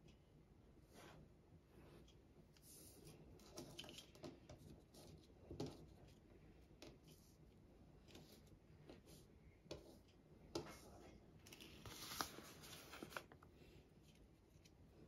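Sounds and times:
paper banknotes rustling: 11.5s - 13.4s.

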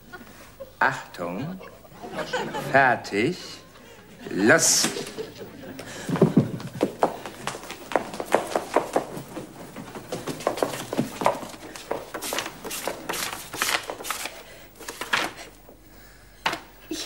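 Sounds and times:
book pages flipping: 10.1s - 15.5s.

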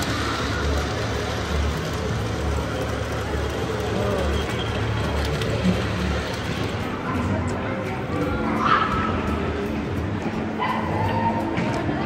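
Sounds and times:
people's voices: 0.0s - 12.0s.

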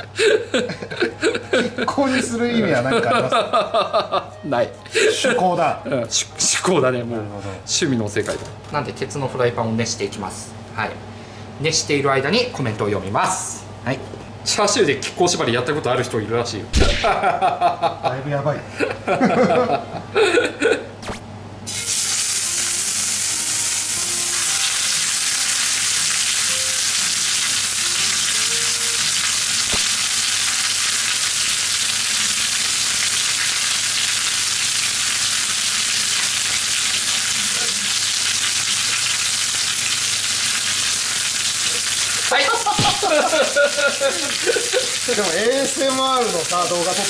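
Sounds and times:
meat sizzling in a frying pan: 21.7s - 47.0s.

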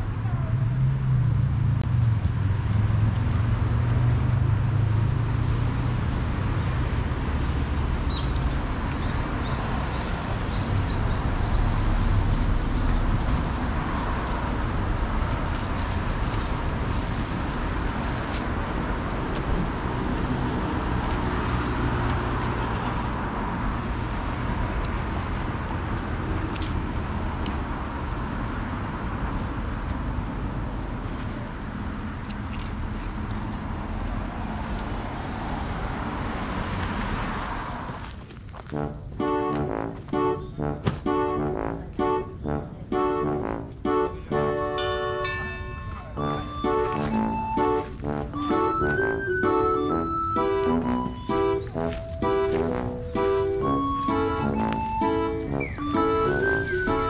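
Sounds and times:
low rumble of road traffic: 0.0s - 57.0s.

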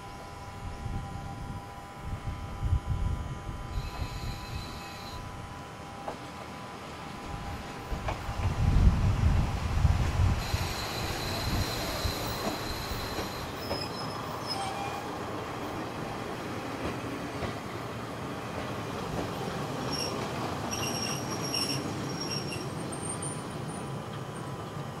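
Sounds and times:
diesel railcar running: 0.0s - 25.0s
train brakes squealing: 3.7s - 5.3s, 10.4s - 15.2s, 19.8s - 24.5s.

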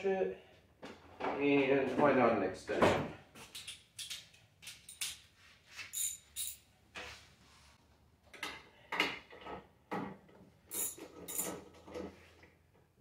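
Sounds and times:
metal tools clinking: 3.5s - 6.7s, 10.7s - 11.7s.

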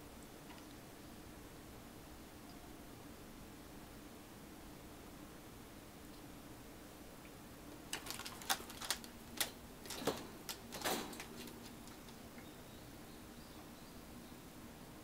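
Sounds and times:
cat claws scraping post and cage: 7.9s - 12.2s.

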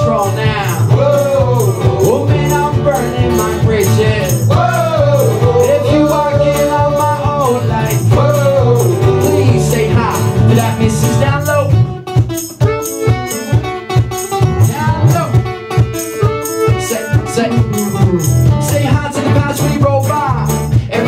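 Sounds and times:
person singing: 0.0s - 11.9s, 16.2s - 21.0s
acoustic band playing live: 0.0s - 21.0s.

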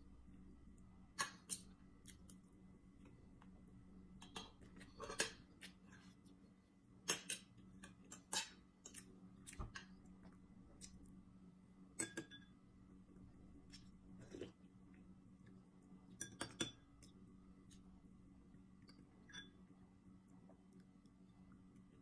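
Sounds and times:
cutlery clicking on a plate: 12.0s - 12.4s.

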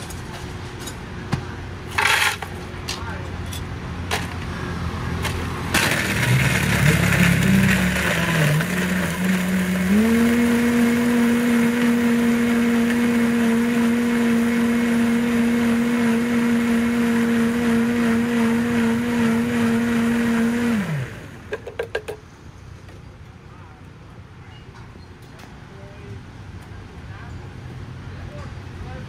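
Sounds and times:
blender crushing ice: 5.7s - 21.8s.

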